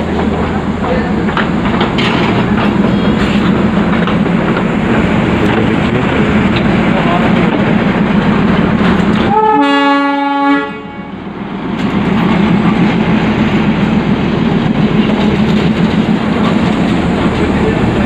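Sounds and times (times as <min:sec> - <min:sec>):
diesel locomotive engine running: 0:00.0 - 0:18.0
locomotive horn blast: 0:09.3 - 0:11.2.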